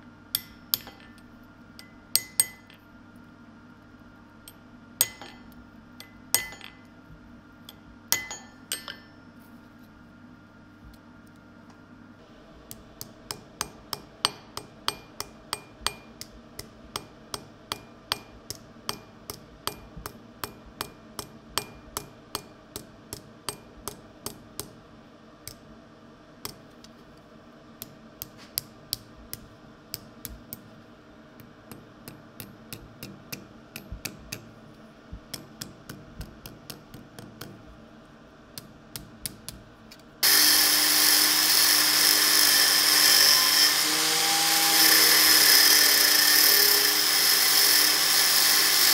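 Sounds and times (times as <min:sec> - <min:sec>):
hammer striking metal on anvil: 0:00.3 - 0:01.2, 0:01.8 - 0:02.8, 0:04.5 - 0:06.9, 0:07.7 - 0:09.2, 0:13.0 - 0:24.8
angle grinder running: 0:40.2 - 0:48.9.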